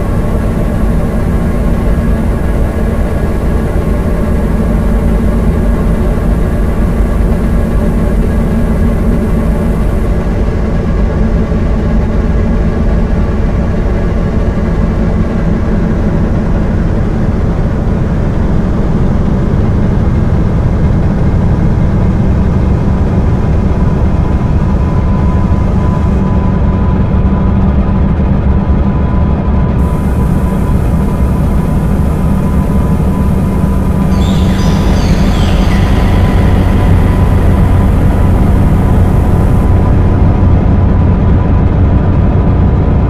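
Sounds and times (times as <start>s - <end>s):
dark ambient electronic drone: 0.0s - 43.0s
high hiss: 29.8s - 40.1s.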